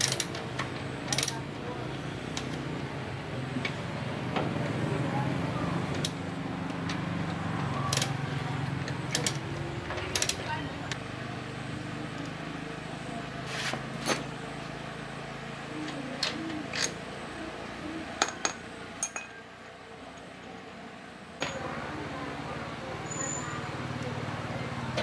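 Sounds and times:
hand tools clinking on metal: 18.2 - 19.4, 21.4 - 21.7.

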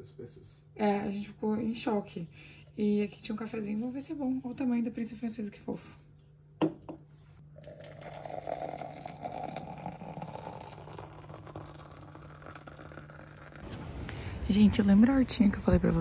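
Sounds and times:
water pouring from kettle: 7.6 - 13.6.

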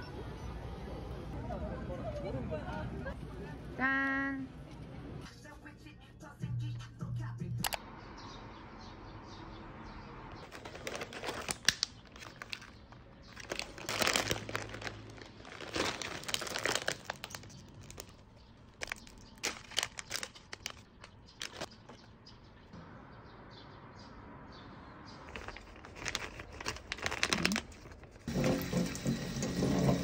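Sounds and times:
plastic packaging crinkling: 10.4 - 22.0, 25.2 - 28.3.

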